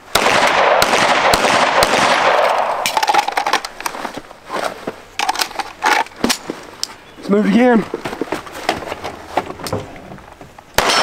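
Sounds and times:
loud gunshot: 0.1s - 2.8s, 10.8s - 11.0s
lighter gunshot cracks: 10.8s - 11.0s.

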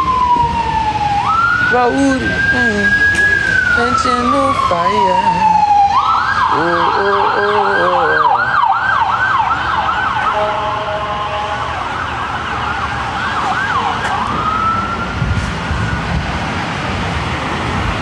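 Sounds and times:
emergency vehicle siren: 0.0s - 18.0s.

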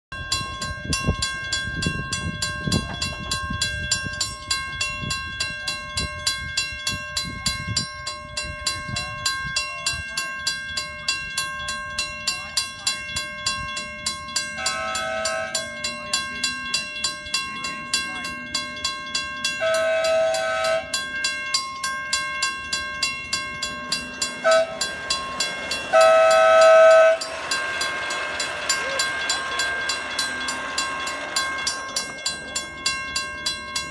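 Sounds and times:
crossing bell ringing: 0.1s - 33.9s
train wheels rolling: 10.2s - 33.9s
train horn blasts: 14.6s - 15.8s, 19.6s - 21.0s, 24.4s - 24.9s, 25.9s - 27.4s.

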